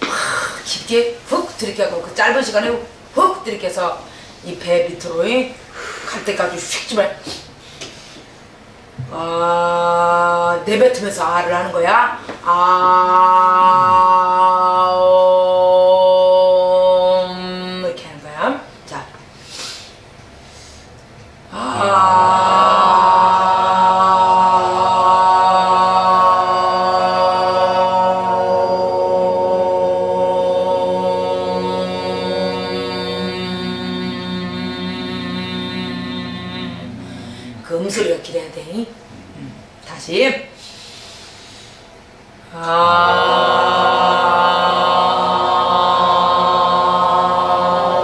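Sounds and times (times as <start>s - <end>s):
women singing a sustained tone: 11.4s - 18.0s, 21.5s - 38.0s, 42.4s - 48.0s.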